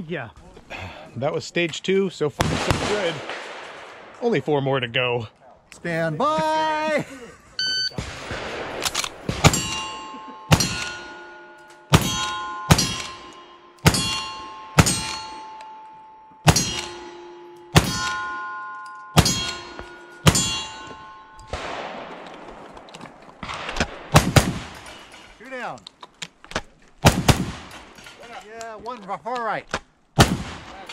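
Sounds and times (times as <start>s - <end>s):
gunshots: 2.4s - 4.6s, 7.9s - 11.3s, 11.9s - 15.6s, 16.5s - 18.3s, 19.2s - 25.4s, 27.0s - 28.0s, 30.2s - 30.9s
steel target ringing: 9.2s - 22.2s.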